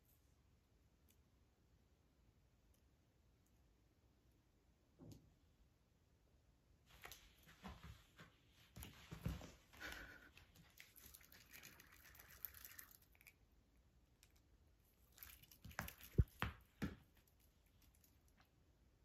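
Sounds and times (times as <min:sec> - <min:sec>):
cat clawing toy rustling: 0:15.0 - 0:18.3.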